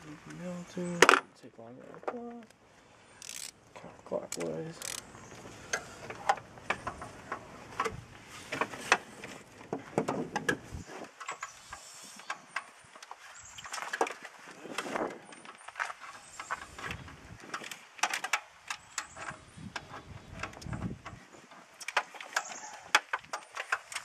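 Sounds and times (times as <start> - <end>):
ratchet clicks: 3.2 - 3.6, 4.3 - 5.1.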